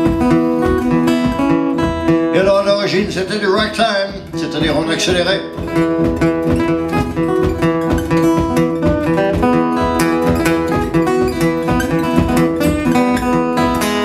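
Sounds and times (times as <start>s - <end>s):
fingerpicked acoustic blues guitar: 0.0s - 14.0s.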